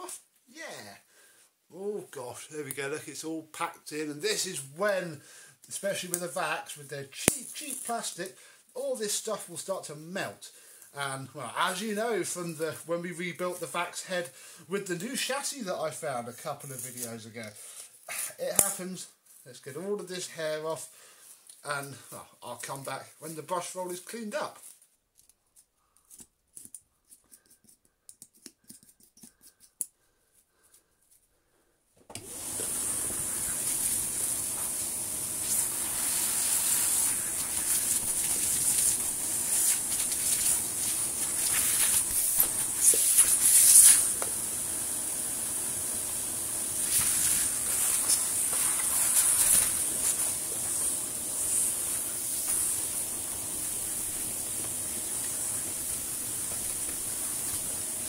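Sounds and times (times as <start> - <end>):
vacuum cleaner running: 32.1 - 58.0.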